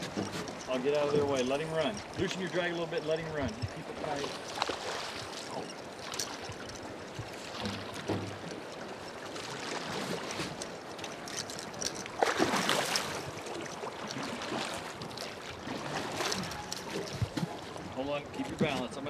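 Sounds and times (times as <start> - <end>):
river water rushing: 3.9 - 18.3
knocks on boat: 7.6 - 8.5.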